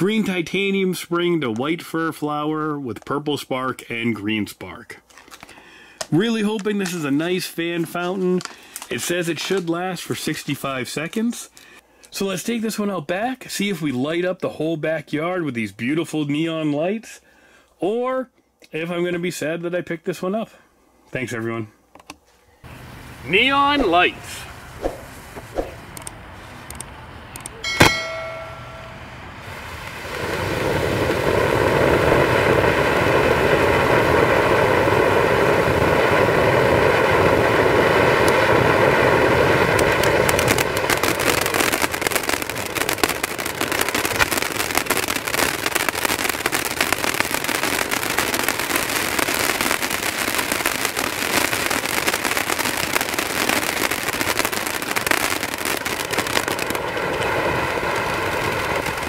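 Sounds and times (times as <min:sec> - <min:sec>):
firework crackling: 0:00.0 - 0:11.5, 0:22.6 - 0:59.0
firework fountain hissing: 0:22.6 - 0:59.0
sharp ringing sound: 0:27.6 - 0:29.4.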